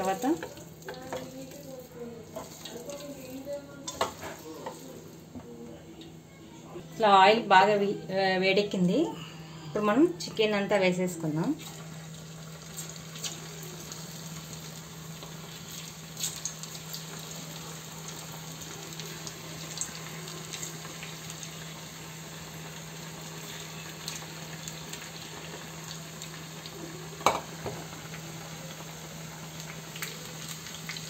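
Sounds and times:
oil popping and crackling: 0.0s - 5.0s, 11.6s - 31.0s
chicken deep-frying in oil: 0.0s - 5.2s, 11.3s - 31.0s.

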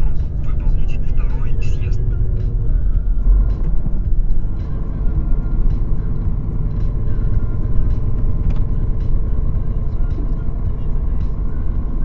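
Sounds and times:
truck engine rumble inside cab: 0.0s - 12.0s.

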